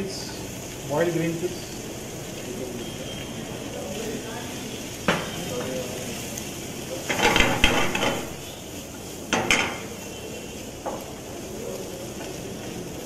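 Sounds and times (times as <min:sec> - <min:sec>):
wooden spatula scraping frying pan: 0:07.1 - 0:10.2.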